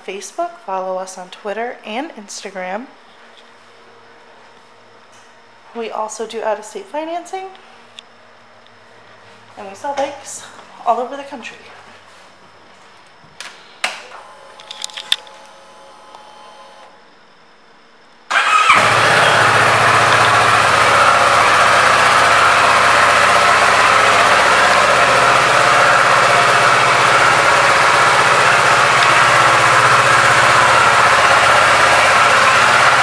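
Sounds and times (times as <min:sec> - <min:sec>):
starter motor turning over: 0:18.3 - 0:33.0
motorcycle engine idling: 0:18.4 - 0:33.0.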